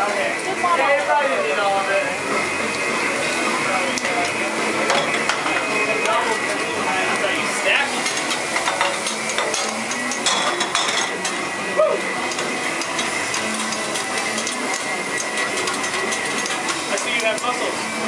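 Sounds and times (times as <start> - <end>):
food sizzling on a griddle: 0.0 - 18.0
metal utensils clicking and scraping: 3.9 - 11.5, 12.2 - 18.0.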